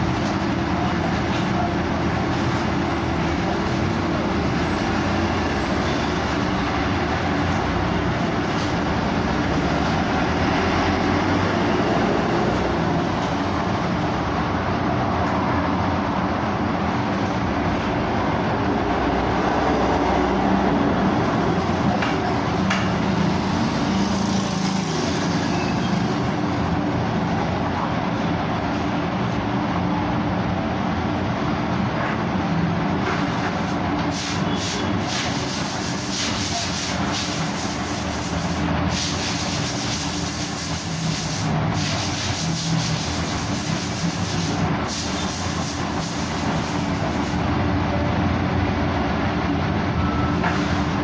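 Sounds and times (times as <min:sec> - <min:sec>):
bus engine running: 0:00.0 - 0:51.0
cars passing: 0:00.0 - 0:51.0
road noise: 0:00.0 - 0:51.0.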